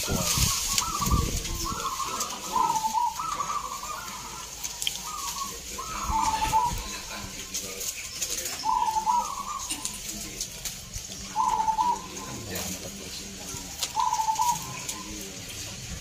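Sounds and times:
doves cooing: 0:00.0 - 0:16.0.

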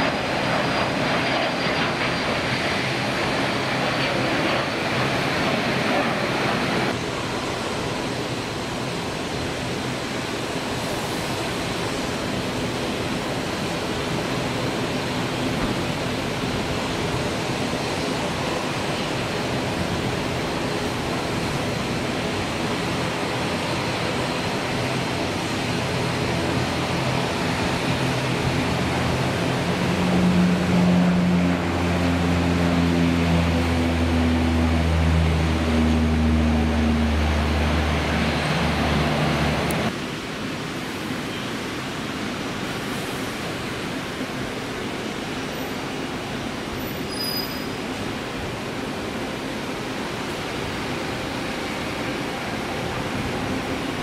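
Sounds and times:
droning propeller tones: 0:00.0 - 0:40.1, 0:47.9 - 0:54.0
turboprop aircraft roar: 0:00.0 - 0:54.0.

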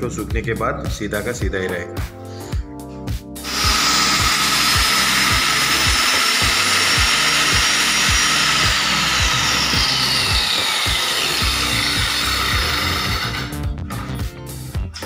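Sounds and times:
circular saw cutting board: 0:03.4 - 0:14.3.

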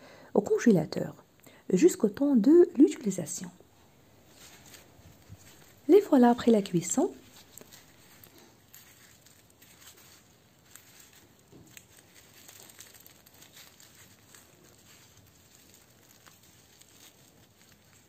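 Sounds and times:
flatbread crackling and tearing: 0:04.2 - 0:18.0.

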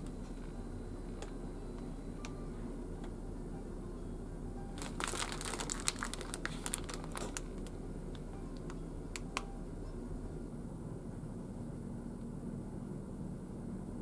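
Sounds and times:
steady low hum: 0:00.0 - 0:14.0
plastic pouch crinkling: 0:04.8 - 0:07.8.

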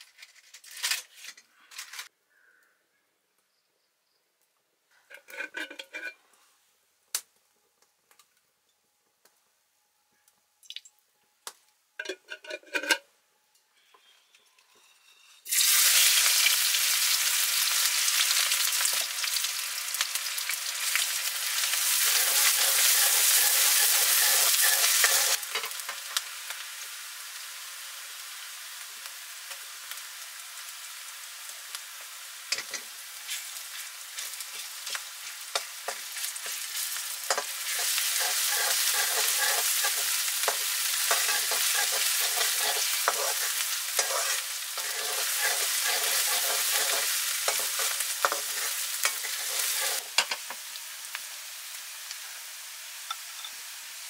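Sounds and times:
food sizzling in hot oil: 0:15.4 - 0:54.0.

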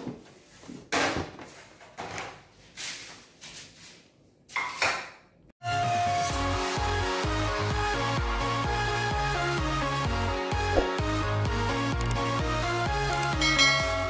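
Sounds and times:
electronic music: 0:05.6 - 0:14.0.

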